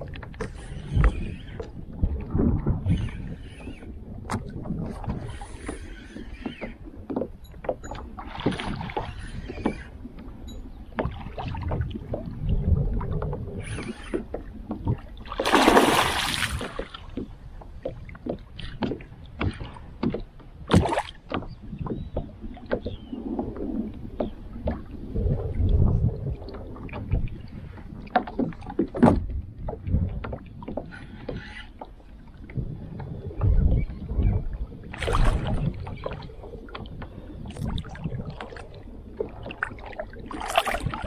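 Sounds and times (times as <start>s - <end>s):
fish splashing: 15.4s - 16.8s.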